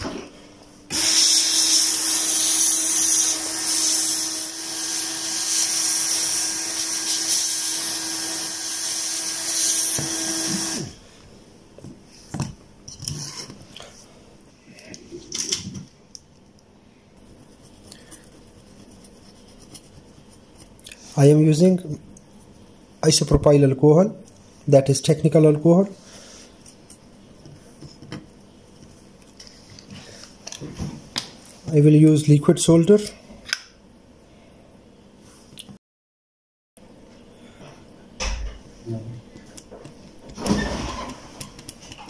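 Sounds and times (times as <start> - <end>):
hot air gun blowing: 0.9 - 11.0.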